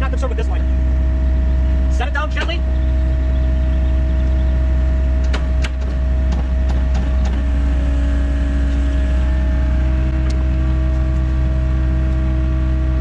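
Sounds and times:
diesel engine running: 0:00.0 - 0:13.0
sharp metallic knocks: 0:05.2 - 0:07.4.

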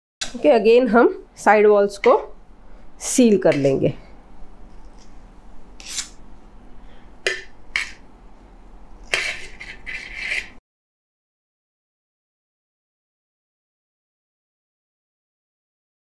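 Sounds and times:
metal knife scraping cream: 0:05.8 - 0:06.2, 0:07.7 - 0:08.0, 0:09.0 - 0:10.6.

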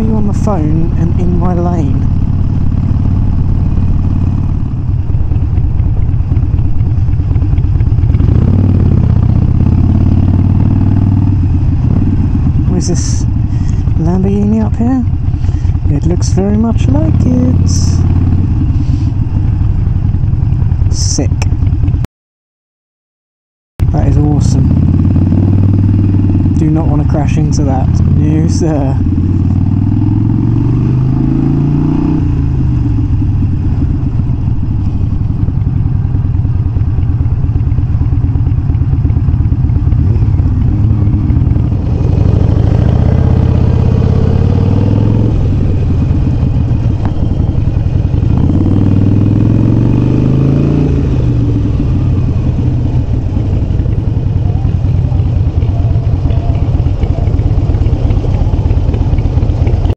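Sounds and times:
motorcycle engine revving: 0:00.0 - 0:22.1, 0:23.8 - 0:59.9.

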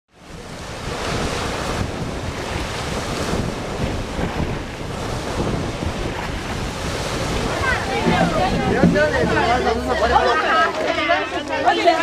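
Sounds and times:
small waves washing onto sand: 0:00.1 - 0:12.0
wind buffeting microphone: 0:00.1 - 0:12.0.

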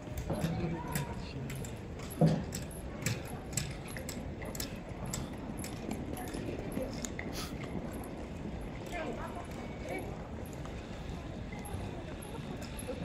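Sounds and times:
murmur of voices: 0:00.0 - 0:13.0.

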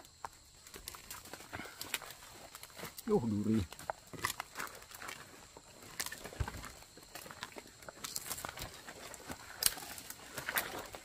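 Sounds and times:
twigs snapping: 0:00.0 - 0:03.1, 0:03.7 - 0:11.0
leaves rustling: 0:00.0 - 0:11.0.

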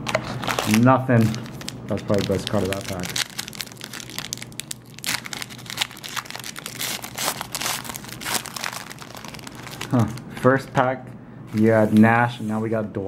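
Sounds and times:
foil wrapper tearing and crinkling: 0:00.0 - 0:10.2.

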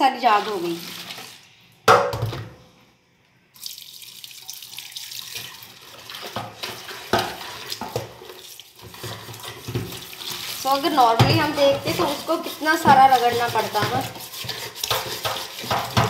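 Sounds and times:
pressure cooker being rinsed: 0:00.0 - 0:01.4, 0:04.5 - 0:16.0
tap water running into sink: 0:03.6 - 0:16.0.

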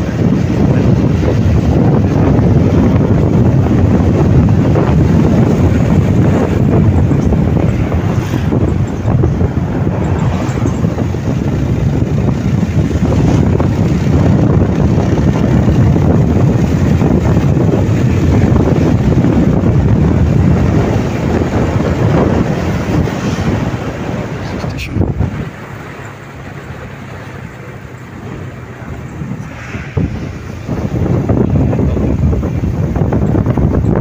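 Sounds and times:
motorcycle running: 0:00.0 - 0:34.0
wind buffeting microphone: 0:00.0 - 0:34.0.

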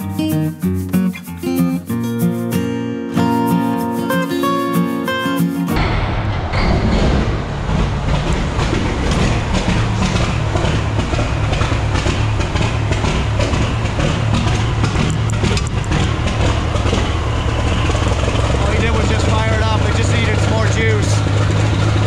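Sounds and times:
diesel truck engine idling: 0:07.3 - 0:22.0.

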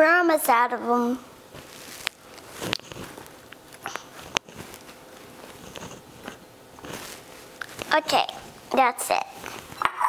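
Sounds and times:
faint handling noise: 0:01.5 - 0:08.7.

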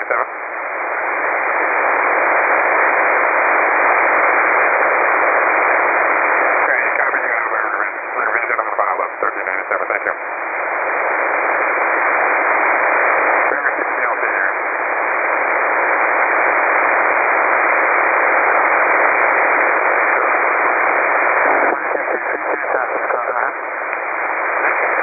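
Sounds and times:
faint voice over radio: 0:00.0 - 0:00.3, 0:06.6 - 0:10.2, 0:13.5 - 0:14.7, 0:21.4 - 0:23.6
radio static hiss: 0:00.0 - 0:25.0.

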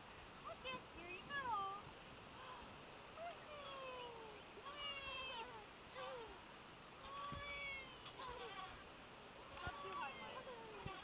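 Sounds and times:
toddler squealing and cooing: 0:03.5 - 0:06.4, 0:07.1 - 0:08.8.

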